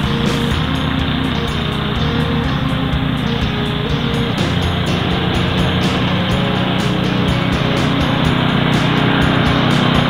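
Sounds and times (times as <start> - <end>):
background music with steady beat: 0.0 - 10.0
mechanical rumble: 0.0 - 10.0.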